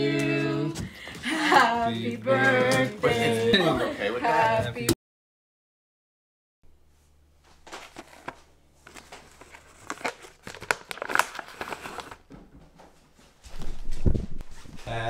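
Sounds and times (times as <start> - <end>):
plastic packaging crinkling: 7.6 - 12.3.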